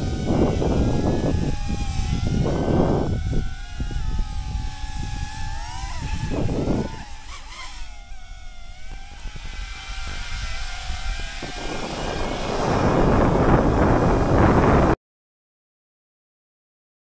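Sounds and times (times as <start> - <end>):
drone propellers whining: 0.0 - 15.0
wind rumble on microphone: 0.0 - 15.0.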